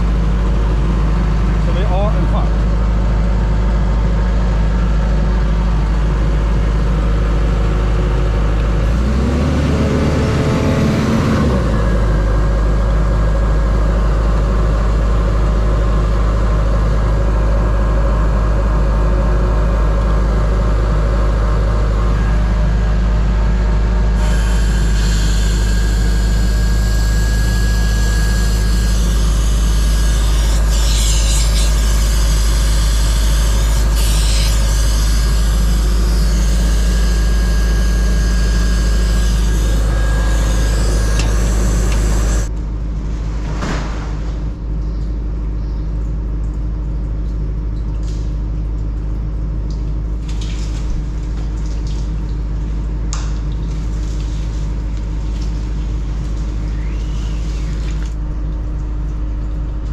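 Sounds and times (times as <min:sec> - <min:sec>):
air compressor engine droning: 0:00.0 - 0:43.2.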